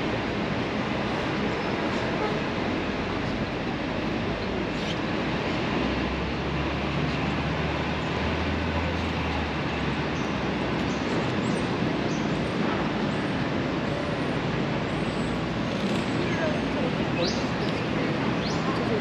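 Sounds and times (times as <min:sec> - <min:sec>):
city traffic noise: 0:00.0 - 0:19.0
vehicle engine hum: 0:00.0 - 0:19.0.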